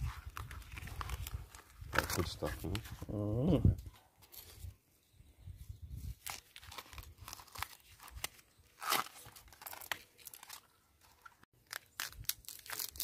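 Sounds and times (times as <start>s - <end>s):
knife scraping and tearing bamboo: 0.0s - 3.0s, 6.1s - 13.0s.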